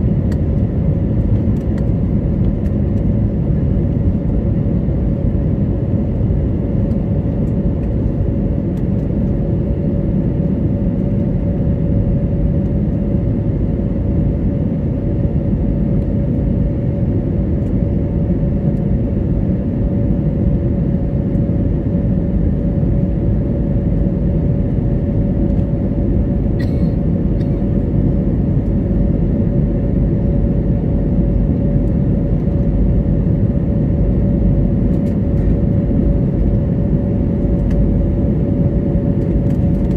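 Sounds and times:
constant cabin hum: 0:00.0 - 0:39.9
jet engine and airflow roar: 0:00.0 - 0:39.9
small click: 0:35.0 - 0:35.5.

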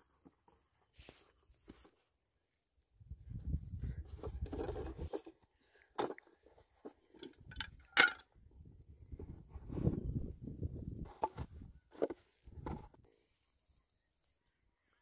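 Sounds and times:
bamboo pieces knocking and clicking: 0:07.2 - 0:08.3.

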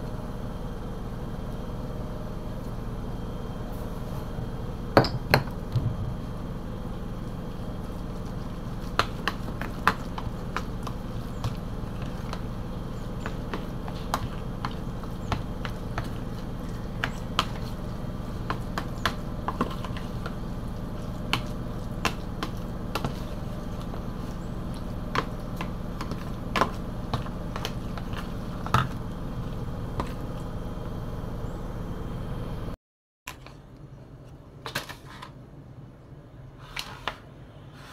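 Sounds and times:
steady low hum: 0:00.0 - 0:32.8
spoon mixing wet meat filling: 0:07.2 - 0:30.4.

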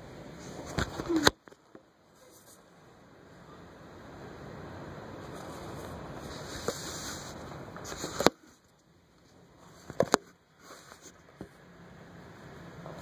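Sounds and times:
rain and wind: 0:00.0 - 0:09.8.

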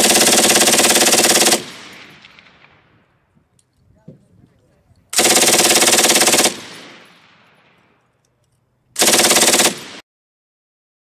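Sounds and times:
machine gun bursts: 0:00.0 - 0:01.8, 0:05.2 - 0:06.8, 0:09.0 - 0:10.0.

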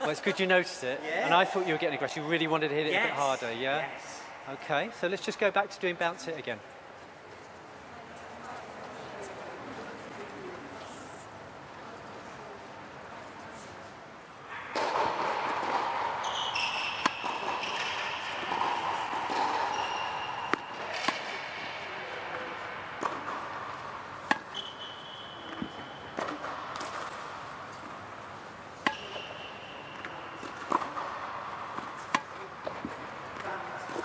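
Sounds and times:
ball bouncing on hard court: 0:14.7 - 0:21.5, 0:28.8 - 0:29.3
racket hitting tennis ball: 0:14.7 - 0:34.0
shoe squeaks: 0:16.2 - 0:21.1, 0:24.5 - 0:26.3.

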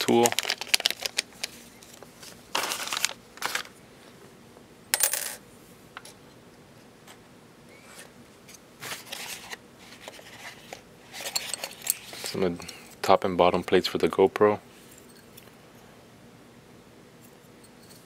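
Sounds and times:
plastic bag rustling: 0:00.0 - 0:03.8.

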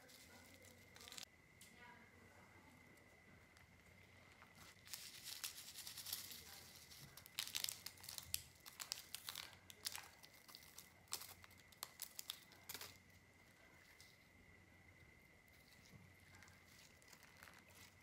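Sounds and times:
slime crinkling and crackling: 0:00.0 - 0:01.3, 0:03.4 - 0:14.2, 0:15.6 - 0:18.0.

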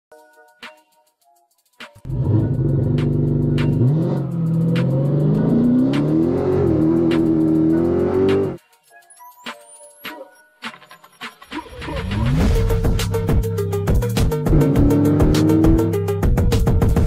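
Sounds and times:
faint music beat: 0:00.1 - 0:17.0
pickup engine accelerating: 0:02.1 - 0:08.6, 0:12.0 - 0:16.0.

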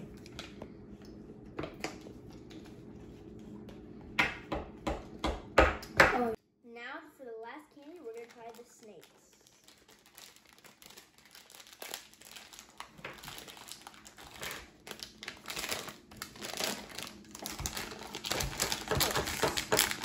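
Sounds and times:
plastic bag crinkling: 0:07.7 - 0:20.0.

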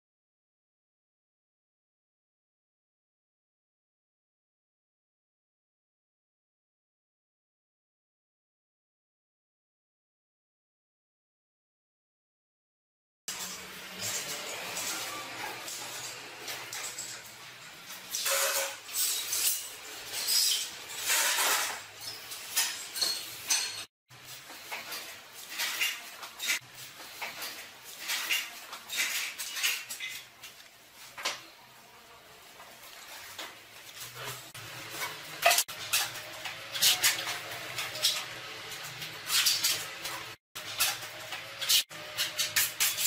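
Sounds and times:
tools clinking on tile: 0:18.1 - 0:23.9, 0:35.0 - 0:38.3.

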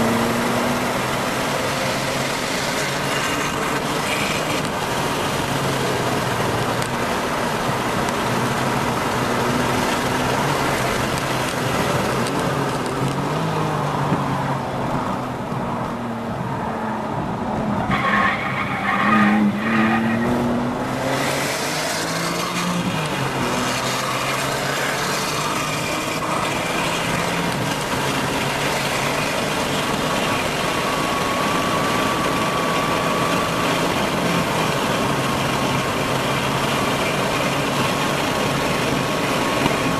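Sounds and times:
racing car engine revving: 0:17.9 - 0:36.8.

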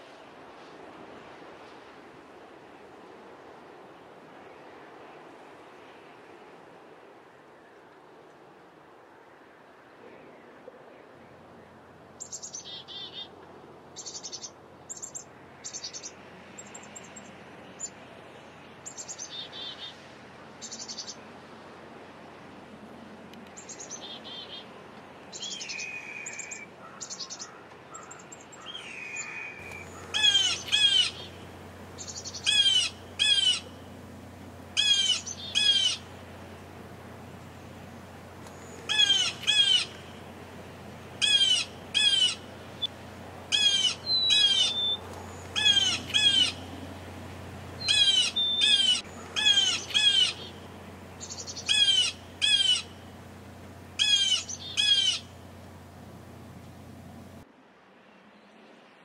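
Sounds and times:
soft bird chirping: 0:25.4 - 0:34.1, 0:34.7 - 0:40.3, 0:43.5 - 0:53.2
blue jays calling: 0:25.6 - 0:57.4.

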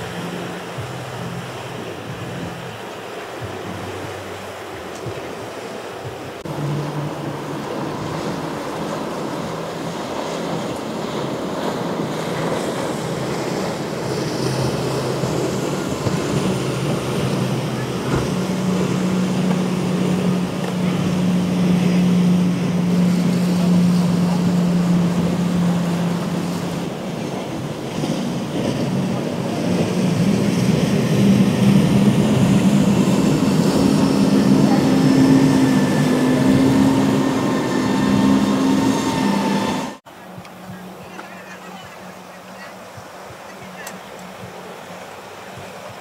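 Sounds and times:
outboard engine drone: 0:00.0 - 0:46.0
wake and surf rushing: 0:00.0 - 0:46.0
wind on microphone: 0:00.0 - 0:46.0.

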